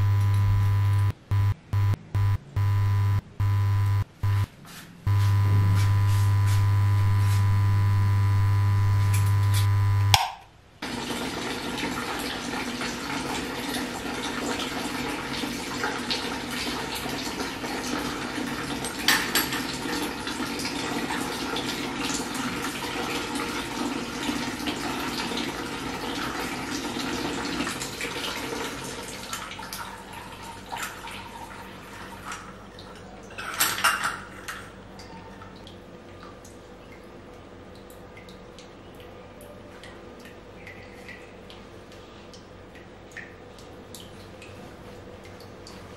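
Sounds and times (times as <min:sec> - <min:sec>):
loud steady hum: 0:00.0 - 0:10.5
water running from tap: 0:10.8 - 0:34.7.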